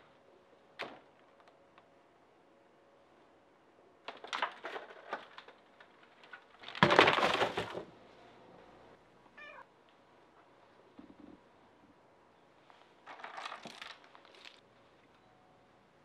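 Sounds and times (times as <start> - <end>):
plastic clicks and clatter: 4.0 - 7.8, 13.1 - 14.6
cat meowing: 9.4 - 9.7.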